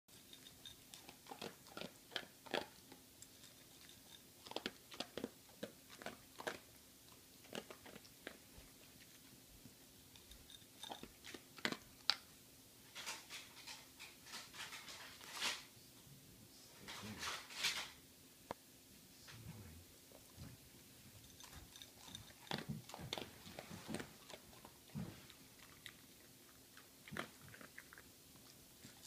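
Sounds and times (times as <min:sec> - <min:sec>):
dog crunching dry kibble: 0:00.1 - 0:09.2, 0:10.2 - 0:15.7, 0:21.2 - 0:29.0.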